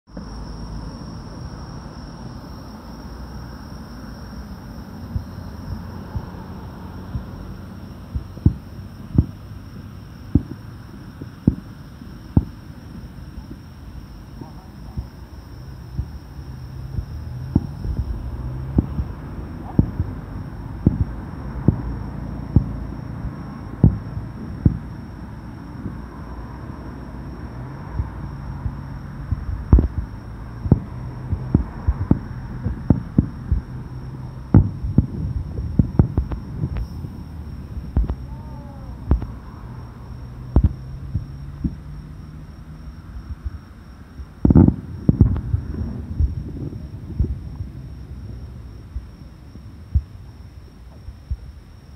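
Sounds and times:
low steady hum: 0.0 - 51.9
distant firework booms: 5.1 - 13.6, 15.9 - 25.0, 27.9 - 42.2, 44.3 - 49.2.

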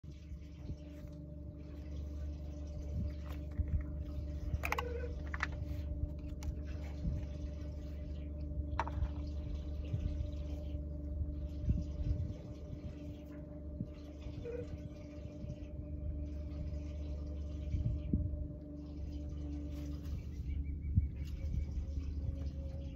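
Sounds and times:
boat motor humming: 0.0 - 22.9
water washing along a hull: 0.0 - 22.9.

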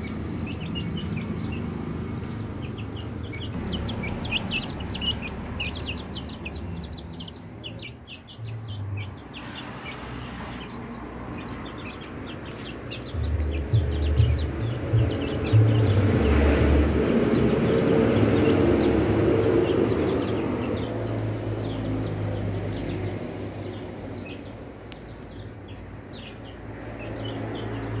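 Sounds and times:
chicks peeping: 0.0 - 28.0
low background rumble: 12.7 - 21.6.

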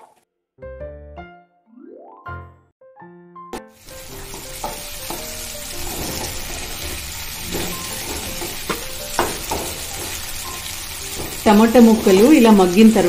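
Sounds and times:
food sizzling in hot oil: 3.6 - 13.0
wooden spatula scraping pan: 4.2 - 12.4.

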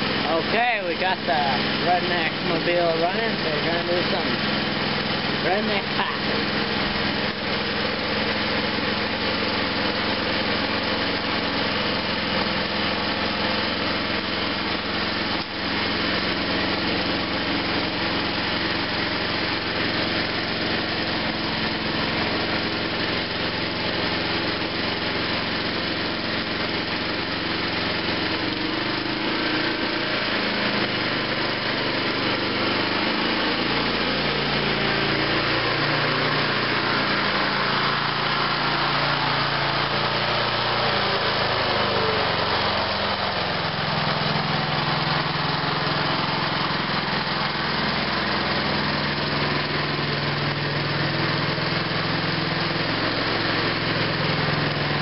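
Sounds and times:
riding lawn mower engine running: 0.0 - 55.0.

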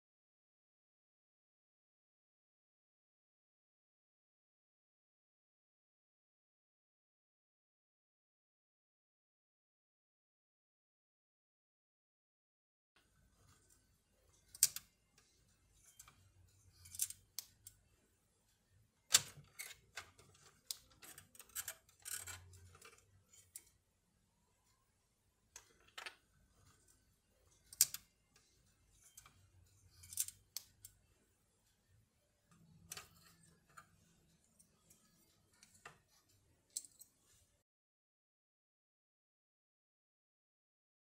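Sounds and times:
plastic parts clicking and tapping: 14.4 - 16.2, 19.1 - 23.8, 27.6 - 31.0, 32.5 - 36.1.

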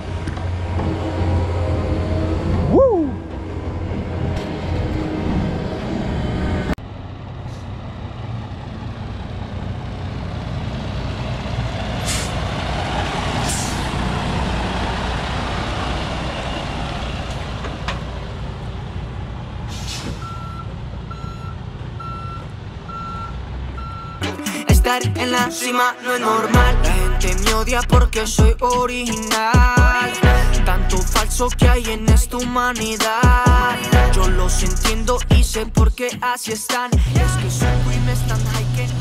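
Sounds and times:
diesel truck engine running: 0.0 - 25.4, 26.6 - 35.9, 37.0 - 39.0
air brake hisses: 12.0 - 12.4, 13.4 - 13.9, 19.7 - 20.4
reversing alarm beeping: 20.2 - 25.9.

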